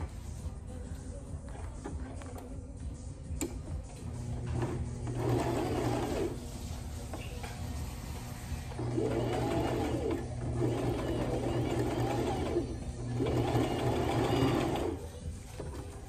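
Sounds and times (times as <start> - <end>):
sewing machine stitching: 4.3 - 6.4, 8.8 - 16.0.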